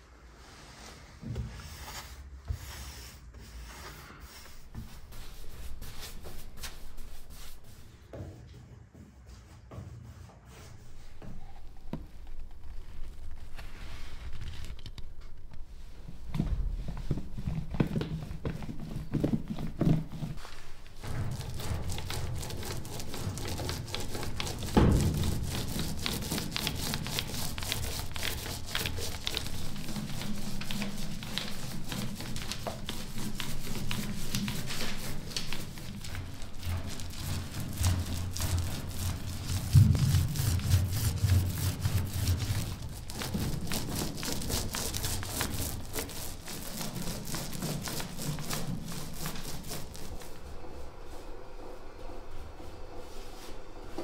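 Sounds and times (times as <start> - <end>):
paint roller sticky crackle: 17.0 - 53.6
knock: 24.6 - 25.7, 39.7 - 40.7.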